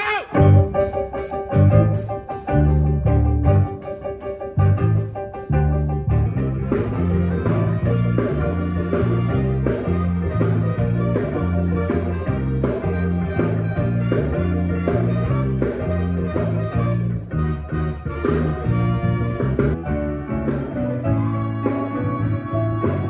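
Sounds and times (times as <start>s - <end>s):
band playing rock and roll: 0.0s - 23.0s
bass line: 0.0s - 23.0s
keyboards and guitar: 0.0s - 23.0s.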